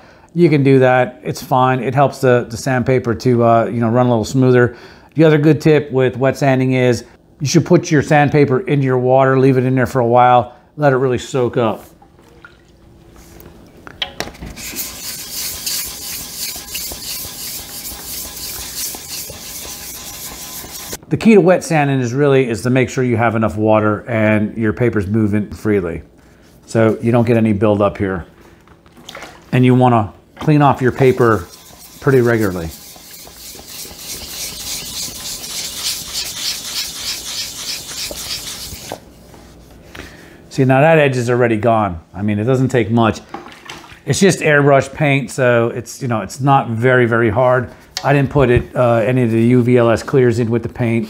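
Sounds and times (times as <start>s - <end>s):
sandpaper rubbing on metal: 14.6s - 21.0s, 30.8s - 39.0s.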